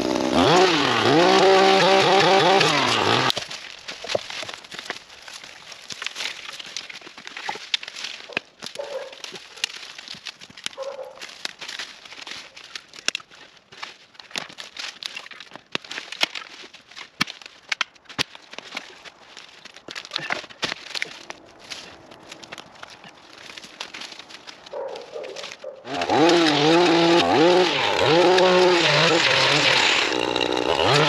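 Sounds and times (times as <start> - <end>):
sticks snapping: 2.1 - 31.0
dry leaves crackling and rustling: 3.3 - 27.1
footsteps in leaves: 3.3 - 28.2.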